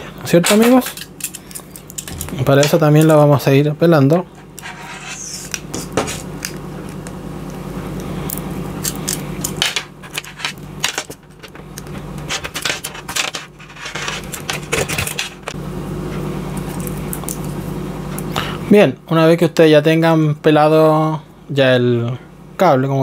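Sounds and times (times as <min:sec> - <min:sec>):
steady low hum: 0:00.0 - 0:23.0
blade scraping cable insulation: 0:04.3 - 0:07.1, 0:08.0 - 0:15.6.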